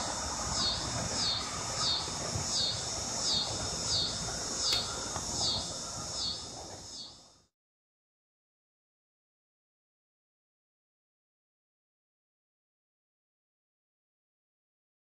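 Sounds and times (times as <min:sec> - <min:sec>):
insects chirping: 0:00.0 - 0:07.5.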